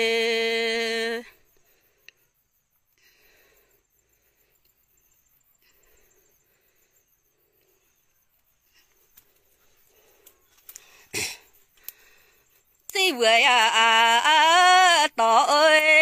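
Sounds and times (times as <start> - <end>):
faint high ticking: 1.6 - 13.0.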